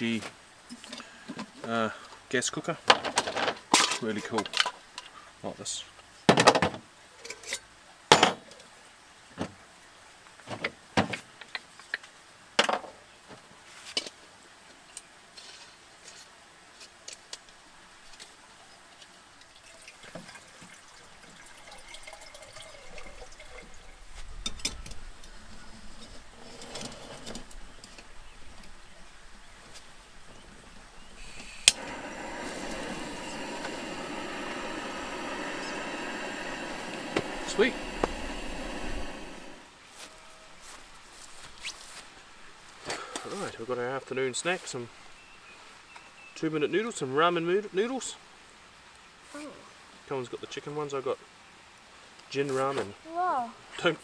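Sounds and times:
gas burner hissing: 31.0 - 39.7.

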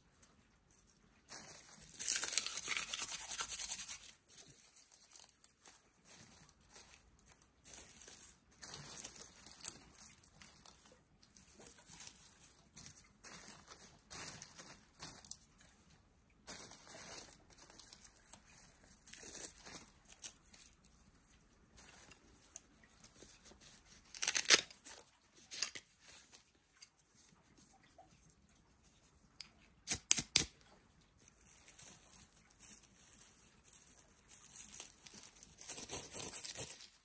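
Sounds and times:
twigs and bark snapping and tearing: 1.8 - 3.2, 6.4 - 11.0, 24.1 - 25.9.

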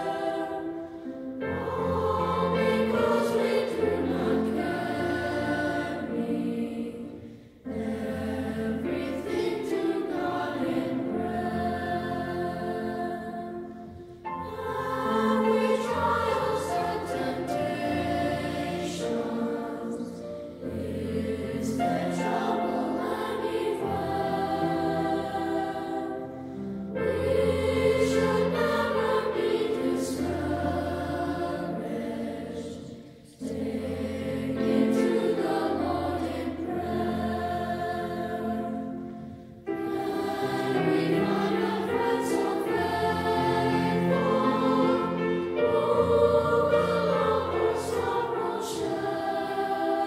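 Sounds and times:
choir singing: 0.0 - 50.0.

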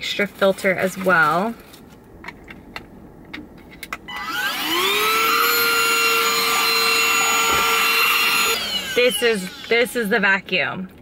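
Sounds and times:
handheld vacuum motor whining: 4.1 - 10.3.

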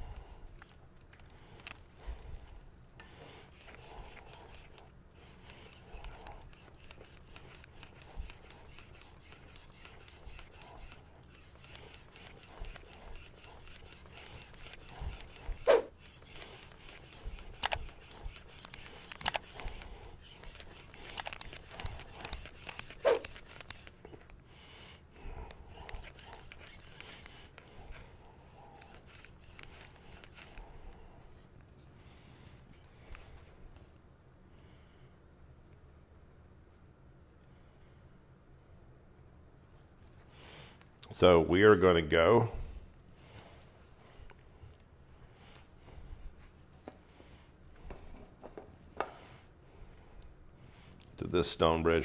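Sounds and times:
blade scraping on whetstone: 3.0 - 23.9, 25.7 - 27.6.

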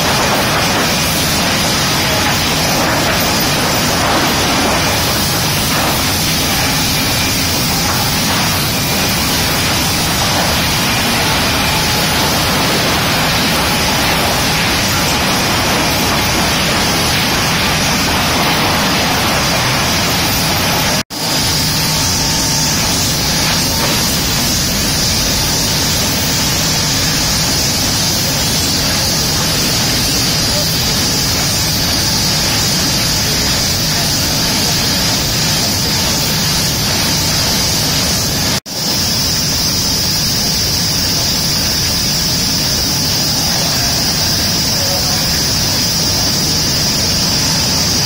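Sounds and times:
industrial machinery din: 0.0 - 48.0.

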